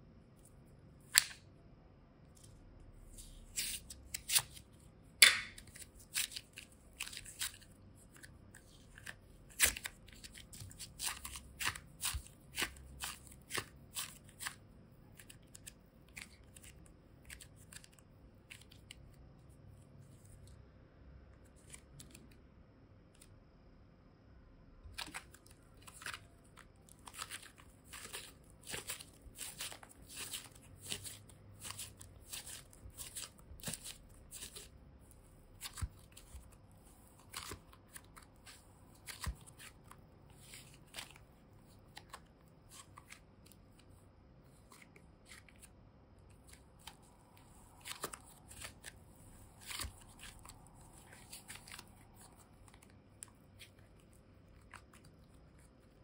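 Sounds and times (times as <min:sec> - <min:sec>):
slime crackling and squishing: 0:05.7 - 0:19.1, 0:24.9 - 0:43.7, 0:46.3 - 0:56.0.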